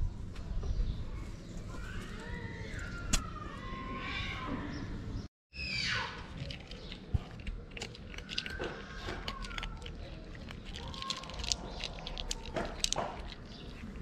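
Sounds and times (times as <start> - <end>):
kittens crunching dry food: 6.2 - 14.0.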